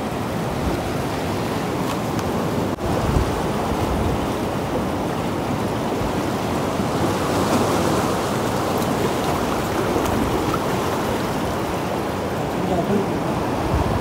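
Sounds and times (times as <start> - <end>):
sea surf washing around rocks: 0.0 - 14.0.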